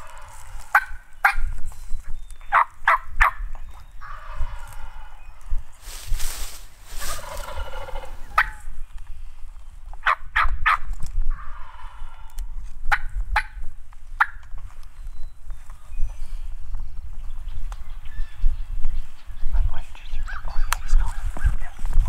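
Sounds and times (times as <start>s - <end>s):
turkeys gobbling: 0.0s - 1.6s, 2.5s - 5.7s, 6.9s - 8.8s, 10.0s - 13.6s
short sharp turkey calls: 6.9s - 8.7s.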